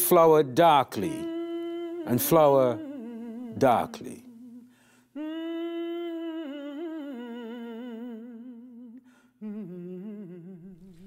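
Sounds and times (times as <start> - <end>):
person humming with vibrato: 5.2 - 11.0.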